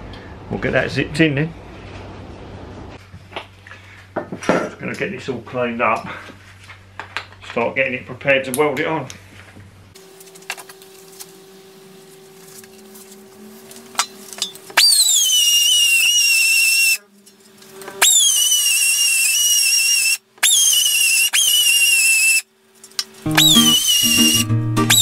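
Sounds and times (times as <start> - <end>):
air belt sander whining: 18.0 - 22.4, 23.3 - 25.0.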